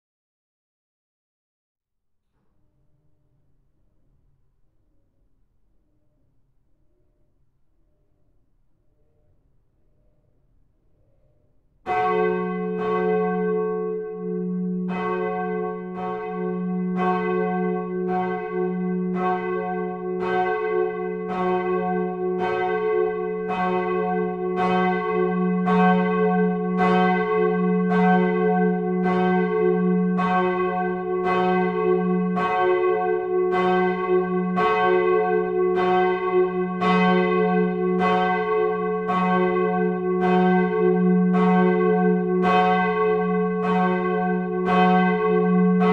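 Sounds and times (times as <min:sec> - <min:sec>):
church bell ringing: 0:11.8 - 0:45.9.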